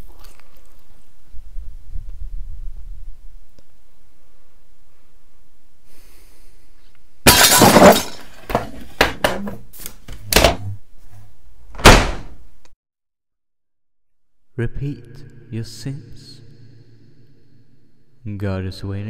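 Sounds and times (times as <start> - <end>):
glass smashing: 7.3 - 8.6
low hum: 14.2 - 18.4.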